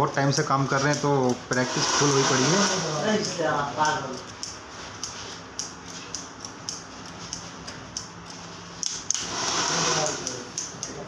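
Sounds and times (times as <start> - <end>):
scissors snipping hair: 0.3 - 1.7, 2.7 - 9.3, 10.0 - 11.0
loud hiss: 1.6 - 3.0, 9.2 - 10.4.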